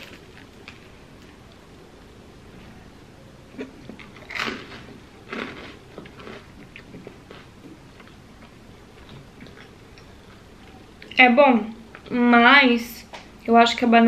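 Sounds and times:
chewing crackles: 0:03.5 - 0:11.2
crunchy toast bites: 0:03.6 - 0:08.2.

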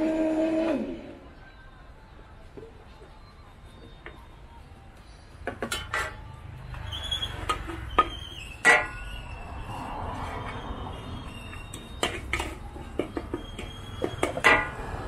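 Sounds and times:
metal spatula scraping a wok: 0:06.8 - 0:15.0.

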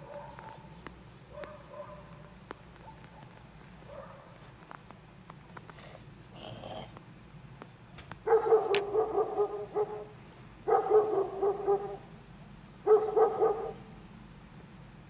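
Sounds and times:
dog barking: 0:00.0 - 0:00.7, 0:01.3 - 0:04.4, 0:08.2 - 0:12.1, 0:12.8 - 0:13.9.

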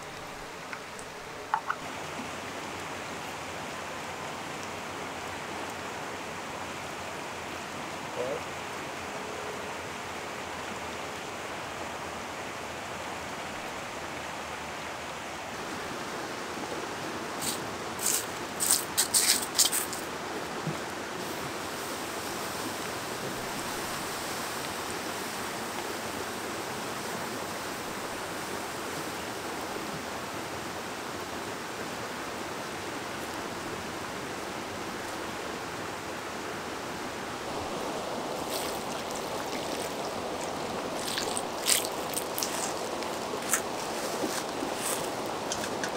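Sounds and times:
fast-flowing river: 0:00.0 - 0:45.9
water poured onto embers: 0:17.4 - 0:20.1, 0:37.7 - 0:45.9.

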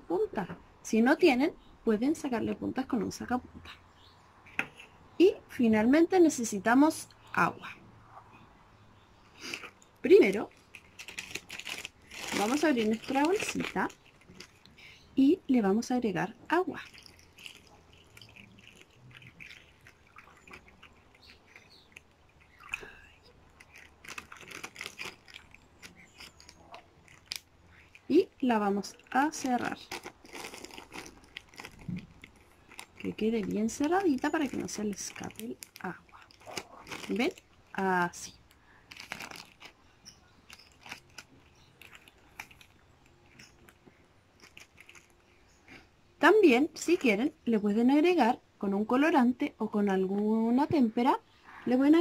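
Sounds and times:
water trickling into plastic bag: 0:10.1 - 0:14.8, 0:16.6 - 0:39.8, 0:40.4 - 0:43.8, 0:44.4 - 0:45.2.

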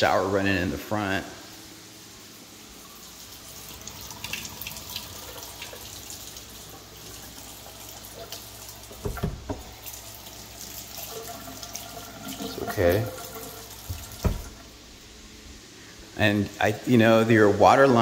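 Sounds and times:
faucet running into metal sink: 0:02.8 - 0:14.7.

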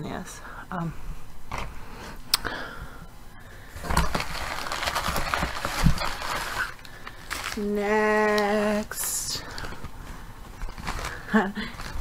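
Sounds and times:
newspaper rustling and crinkling: 0:03.8 - 0:12.0.

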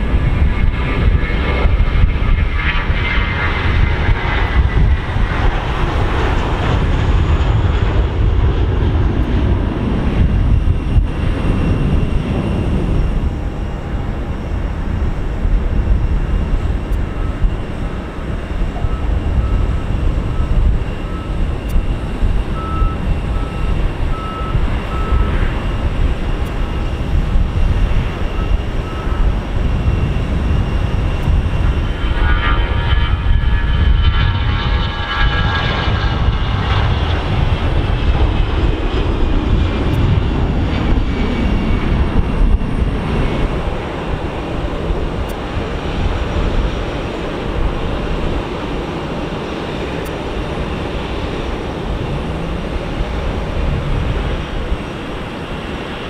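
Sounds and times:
jet engine whine falling in pitch: 0:00.0 - 0:56.0
jet engines running steadily: 0:00.0 - 0:56.0.

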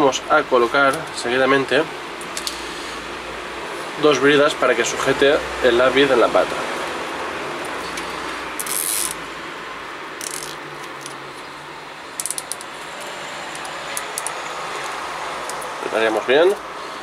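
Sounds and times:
cable ties zipping clicks: 0:07.9 - 0:09.2, 0:10.2 - 0:11.2.

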